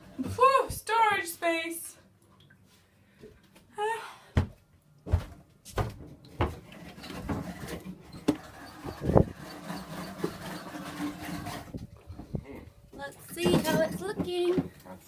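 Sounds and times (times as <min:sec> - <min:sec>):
footsteps thumping in boat cabin: 0:04.4 - 0:06.6.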